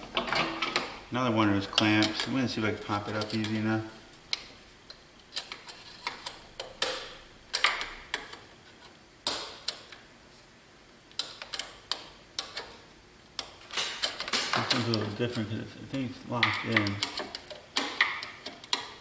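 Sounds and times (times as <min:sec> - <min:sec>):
hose clip clicking and scraping: 0:01.8 - 0:03.7.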